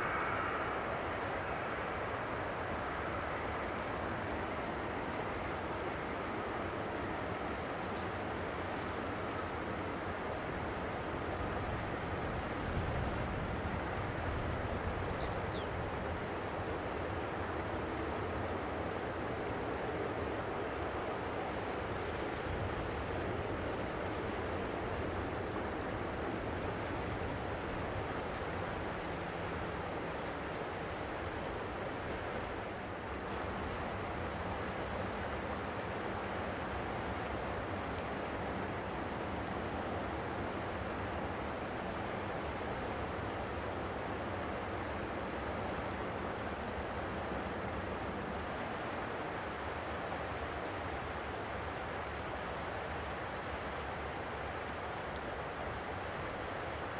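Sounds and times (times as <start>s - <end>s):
jet engines idling: 0.0s - 12.8s.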